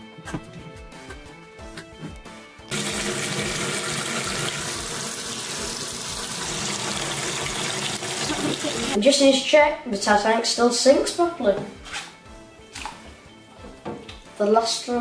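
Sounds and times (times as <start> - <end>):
background music: 0.0 - 15.0
tap running water: 2.7 - 9.0.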